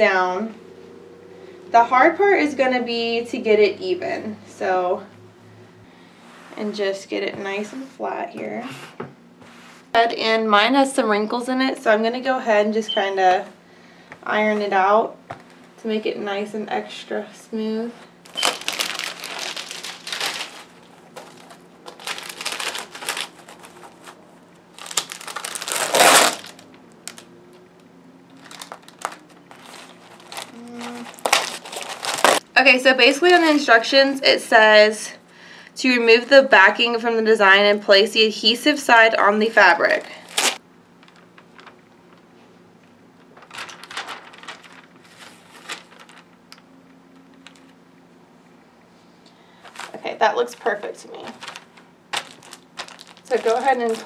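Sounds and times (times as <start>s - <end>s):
plastic packaging crinkling: 18.2s - 27.3s, 28.3s - 32.4s, 39.9s - 42.3s, 43.2s - 47.8s, 49.6s - 54.0s
plastic film rustling and ticking: 18.2s - 32.4s, 39.9s - 42.3s, 43.1s - 47.8s, 49.7s - 54.0s.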